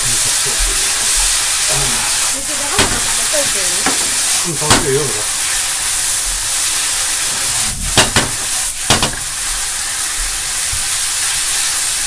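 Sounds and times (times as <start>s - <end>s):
noodles sizzling in frying pan: 0.0s - 12.0s
chopsticks striking pan: 2.7s - 5.0s, 8.0s - 9.3s.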